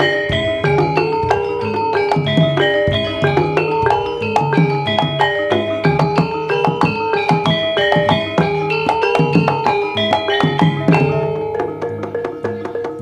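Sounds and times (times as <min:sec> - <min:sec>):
hand drum strokes: 0:00.0 - 0:13.0
metallophones ringing: 0:00.0 - 0:13.0.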